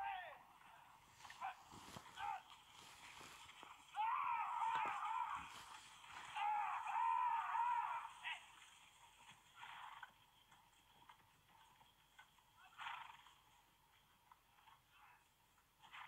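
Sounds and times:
horse neighing: 12.6s - 13.4s.

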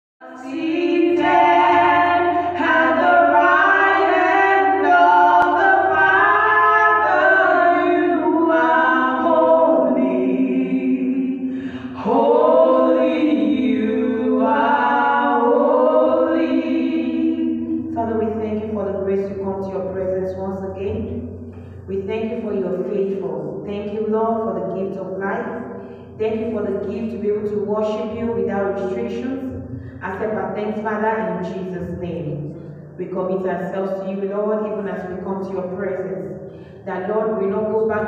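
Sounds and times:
woman singing into microphone: 0.2s - 19.9s.

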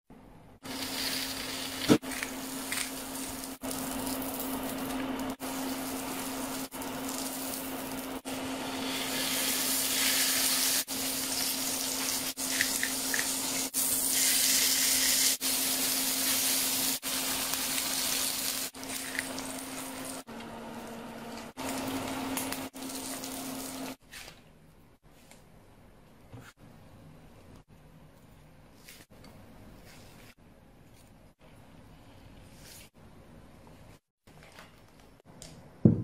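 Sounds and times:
meat sizzling on griddle: 0.7s - 20.2s.

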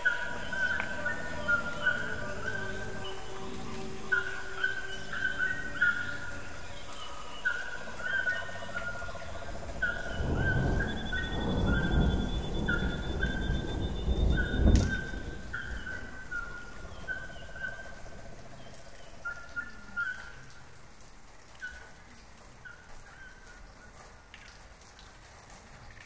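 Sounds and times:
short whistled calls: 0.0s - 20.6s
low rumble with thud: 9.6s - 16.8s.

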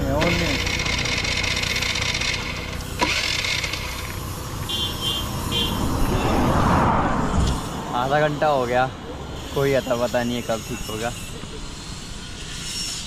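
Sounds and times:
scooter engine cranking: 0.0s - 4.5s.

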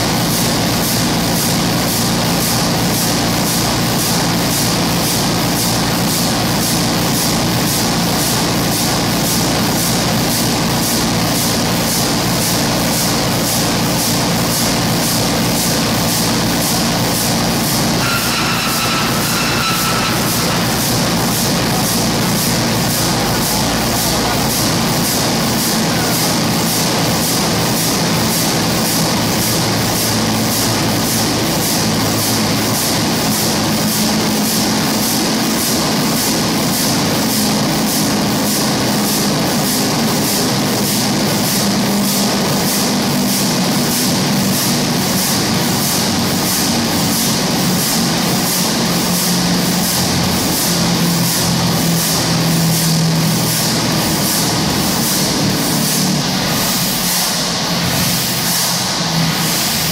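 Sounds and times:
marine diesel engine beating: 0.0s - 59.9s.

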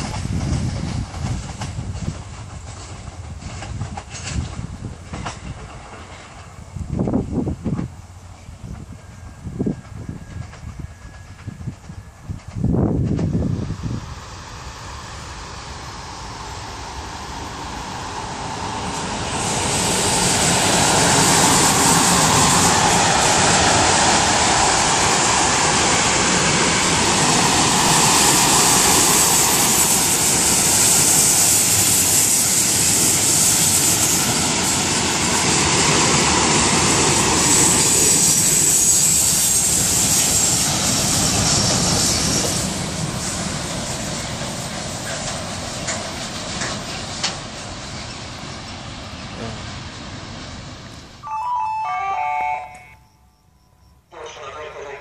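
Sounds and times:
train wheels on rails: 0.0s - 53.0s
high hiss: 13.2s - 54.4s.

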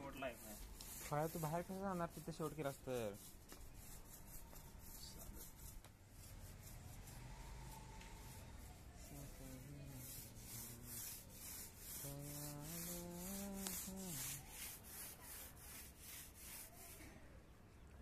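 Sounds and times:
person speaking: 0.0s - 3.4s, 9.0s - 15.4s
paint roller rasping on concrete: 0.0s - 17.2s.

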